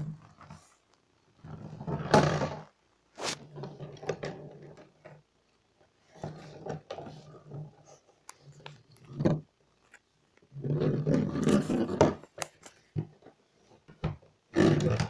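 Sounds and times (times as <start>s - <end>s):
plastic ball rolling on enamel: 10.4s - 12.4s.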